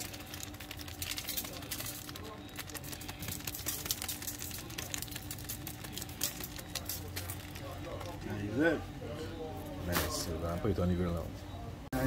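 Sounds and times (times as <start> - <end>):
seasoning shaken onto foil tray: 0.0 - 8.2.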